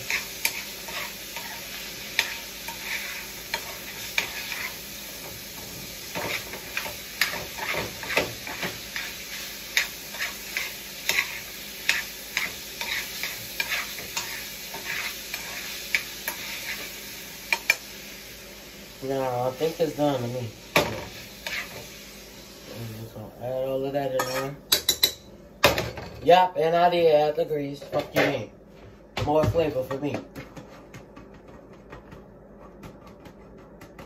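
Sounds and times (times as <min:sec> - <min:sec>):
meat sizzling in a skillet: 0:00.0 - 0:23.2
utensil tapping and scraping pan: 0:05.6 - 0:09.1, 0:09.8 - 0:16.9.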